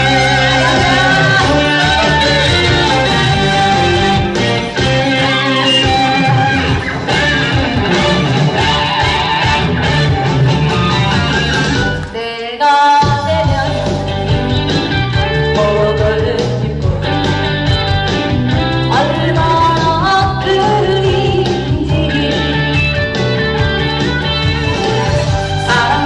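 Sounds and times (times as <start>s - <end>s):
woman singing into a microphone: 0.0s - 3.3s, 12.1s - 14.2s, 15.2s - 17.3s, 18.9s - 23.0s, 25.6s - 26.0s
recorded band backing track: 0.0s - 26.0s.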